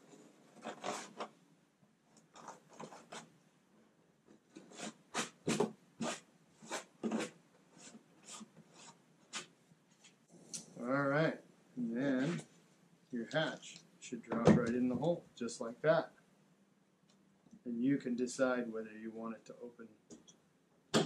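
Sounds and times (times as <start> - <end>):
hand tool scraping plastic edge: 0.0 - 1.3, 4.5 - 9.5.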